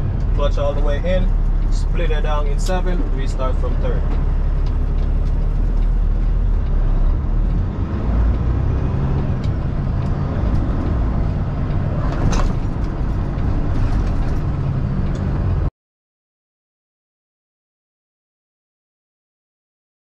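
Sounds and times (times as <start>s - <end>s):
diesel truck engine rumble: 0.0s - 15.7s
road noise: 0.0s - 15.7s.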